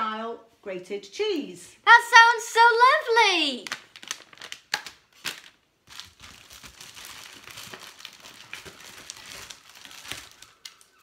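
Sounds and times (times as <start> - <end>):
packaging crinkling and rustling: 3.6 - 11.0.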